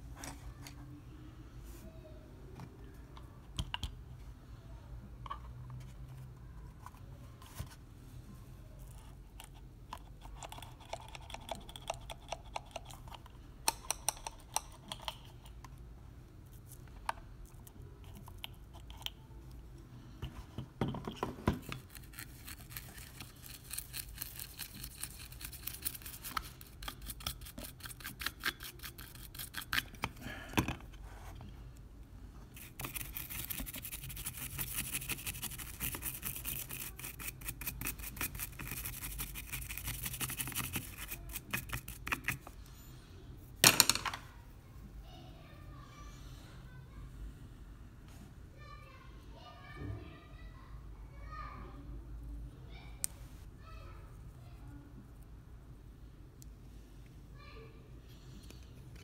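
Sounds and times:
brush scrubbing circuit board: 32.6 - 42.4.

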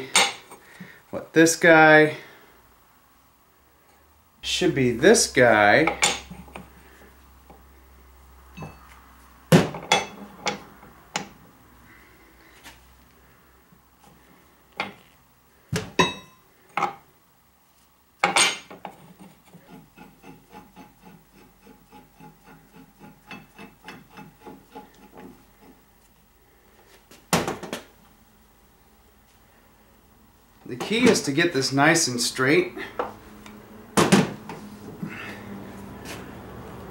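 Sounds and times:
steel tools clanking on metal: 5.9 - 6.4.

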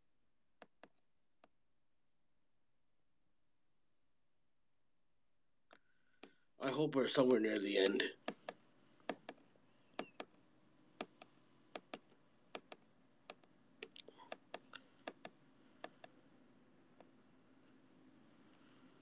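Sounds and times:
fingertips tapping touchscreen: 8.2 - 10.4, 11.0 - 16.3.

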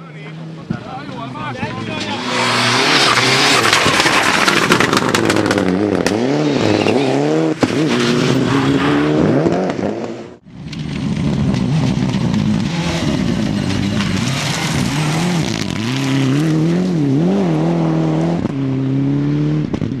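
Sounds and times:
rally car engines revving: 0.0 - 20.0
sharp engine crackles: 1.3 - 7.2, 10.5 - 16.9.

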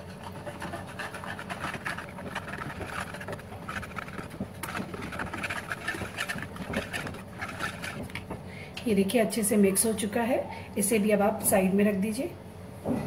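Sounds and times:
whisk swishing in plastic bowl: 0.0 - 8.4.

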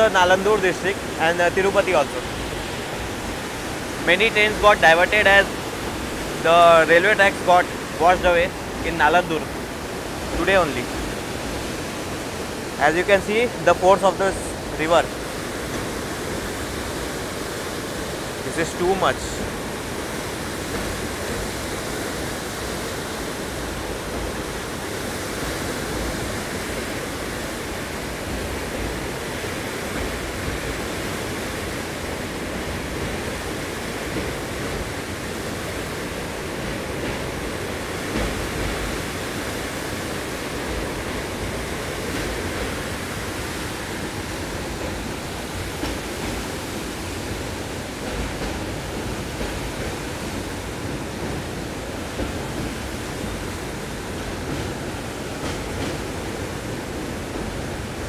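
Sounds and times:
river torrent: 0.0 - 58.0
train running noise: 0.0 - 58.0.

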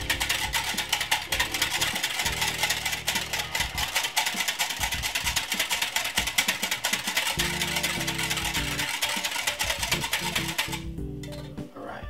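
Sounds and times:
whisk clicking against glass: 0.0 - 11.5
background music with bass: 9.9 - 11.8.

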